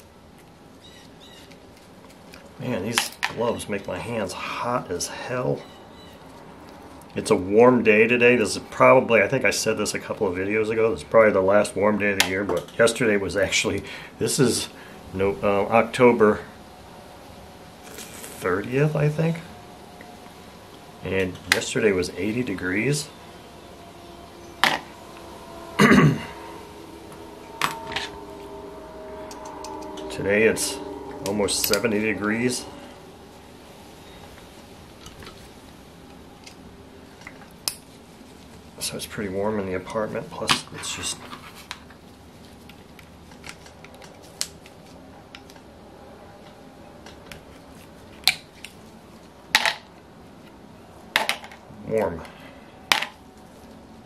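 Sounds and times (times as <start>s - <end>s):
faint room hum: 0.0s - 54.0s
person coughing: 25.8s - 26.3s.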